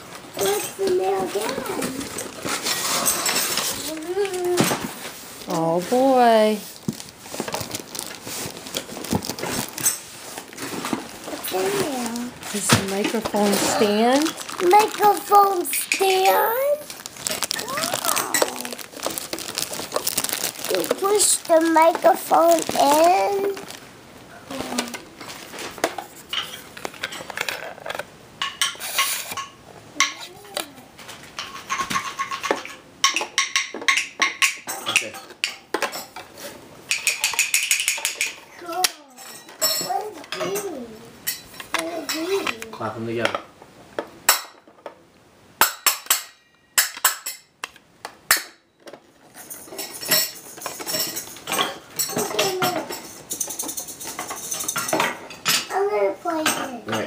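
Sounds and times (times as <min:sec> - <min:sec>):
handling clatter and rustle: 0:00.1 - 0:23.8, 0:24.5 - 0:29.5, 0:48.3 - 0:55.7
small metal parts clinking: 0:49.3 - 0:55.6.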